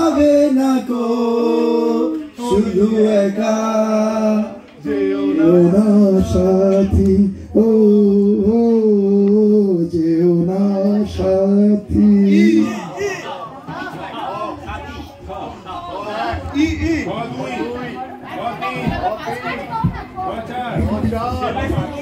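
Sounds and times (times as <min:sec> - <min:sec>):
man singing into microphone: 0:00.0 - 0:13.0.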